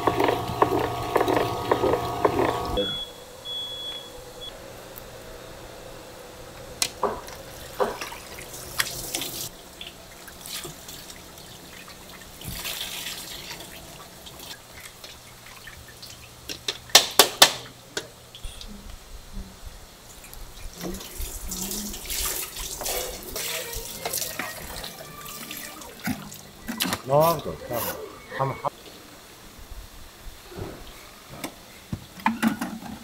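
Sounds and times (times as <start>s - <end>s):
water splashing and dripping: 7.2s - 17.0s, 20.1s - 27.1s.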